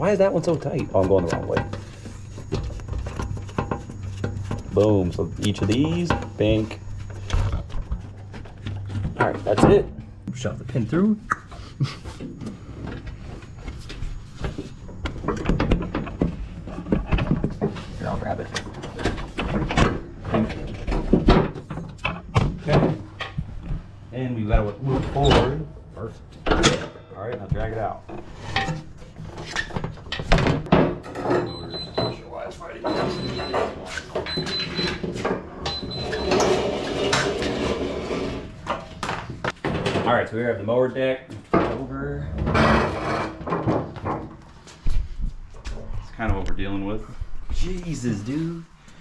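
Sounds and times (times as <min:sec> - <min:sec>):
small wheels rolling and bumping: 0:33.1 - 0:40.0
mower deck scraping across concrete: 0:36.1 - 0:38.7.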